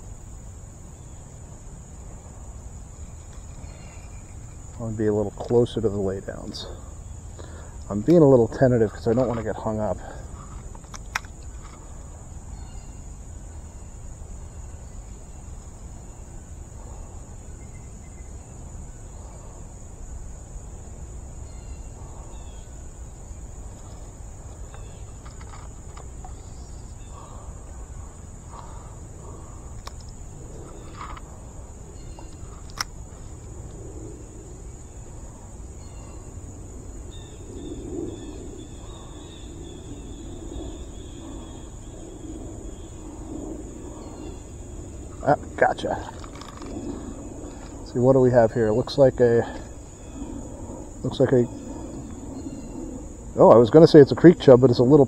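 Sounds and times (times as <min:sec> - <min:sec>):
low background rumble: 0:00.0 - 0:54.8
high-pitched insect drone: 0:00.0 - 0:55.0
sharp clicks: 0:29.7 - 0:30.2.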